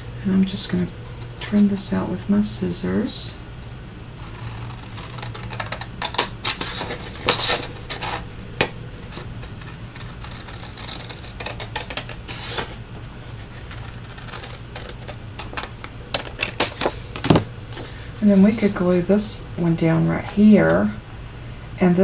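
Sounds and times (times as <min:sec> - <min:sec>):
scissors snipping paper: 0:04.3 - 0:08.2, 0:09.1 - 0:12.7, 0:13.6 - 0:16.9.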